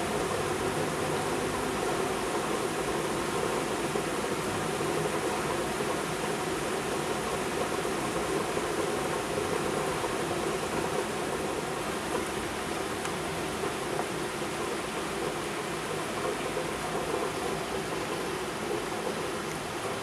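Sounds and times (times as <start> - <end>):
heavy rain pouring: 7.6 - 20.0.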